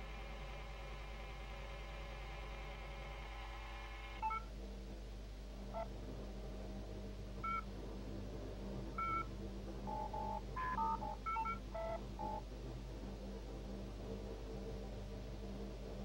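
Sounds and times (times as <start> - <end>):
steady low hum: 0.0 - 16.0
electronic keypad beeps: 9.9 - 12.4.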